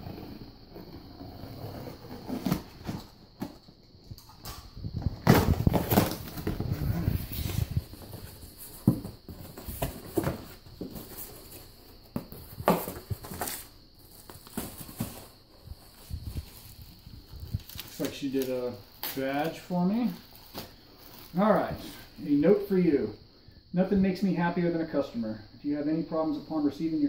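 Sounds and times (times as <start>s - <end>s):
box packaging rustling and crinkling: 1.1s - 22.2s
knocks and thumps: 4.4s - 13.6s.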